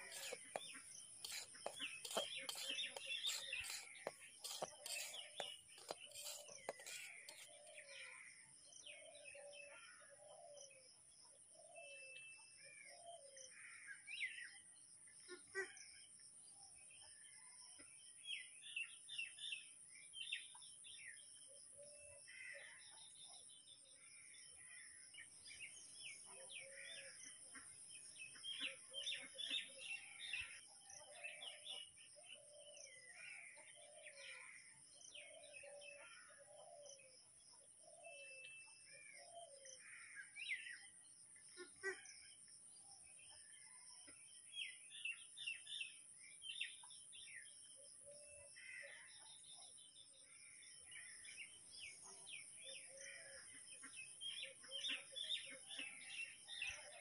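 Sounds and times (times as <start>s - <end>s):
birds chirping: 0.0s - 7.9s.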